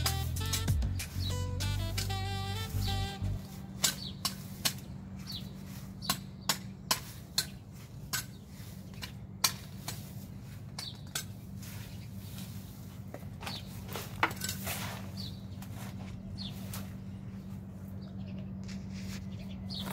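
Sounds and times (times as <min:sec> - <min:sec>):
grass cutting snips: 0:00.0 - 0:15.8
steady low hum: 0:00.0 - 0:19.9.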